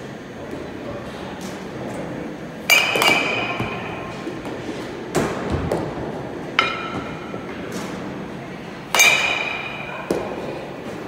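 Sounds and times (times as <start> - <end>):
metal bat hitting baseball: 2.7 - 4.0, 6.6 - 7.3, 8.9 - 10.2.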